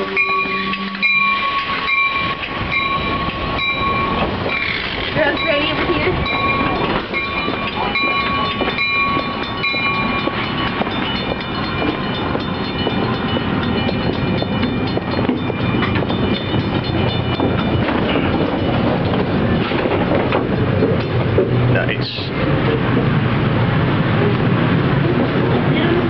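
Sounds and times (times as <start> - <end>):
train brakes squealing: 0.0 - 11.2
standing train rumble: 0.0 - 26.0.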